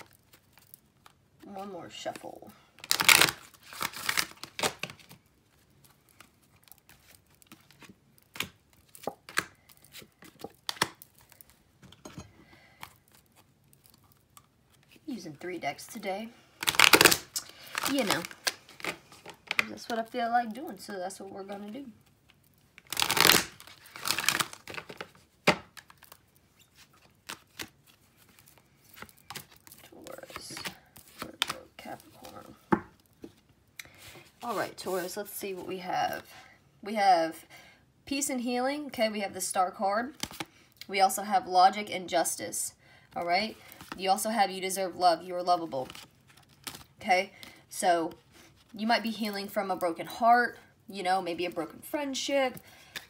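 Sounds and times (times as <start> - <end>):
cards shuffled by hand: 16.6 - 35.3.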